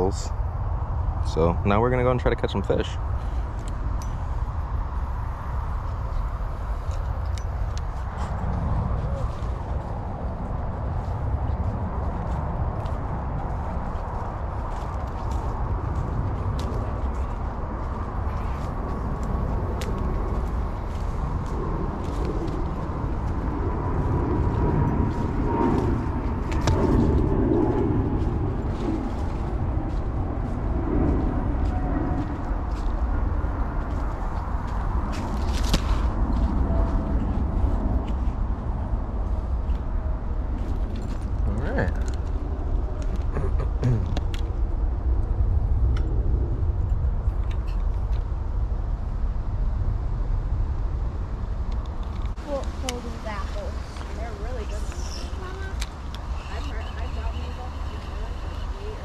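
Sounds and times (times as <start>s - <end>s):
steady low rumble: 0.0s - 59.0s
wind buffeting microphone: 0.0s - 59.0s
footsteps on dirt trail: 3.1s - 39.8s.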